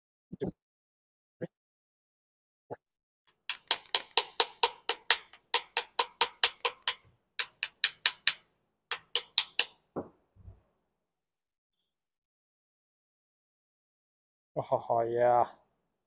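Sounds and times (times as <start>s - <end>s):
screwdriver handle rapping metal: 3.4s - 9.9s.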